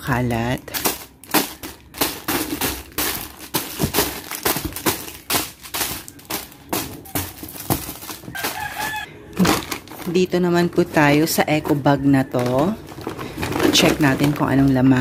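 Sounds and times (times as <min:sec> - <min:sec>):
plastic packs crinkling: 0:00.0 - 0:15.0
knocks against cardboard box: 0:01.4 - 0:08.7.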